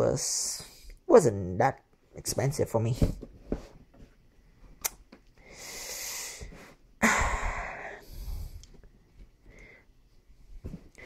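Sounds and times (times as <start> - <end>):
person breathing: 5.4 - 10.0.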